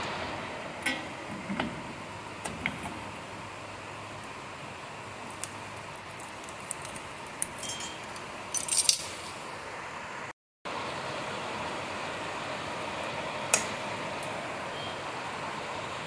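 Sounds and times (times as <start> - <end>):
metal tools clinking: 7.6 - 9.1.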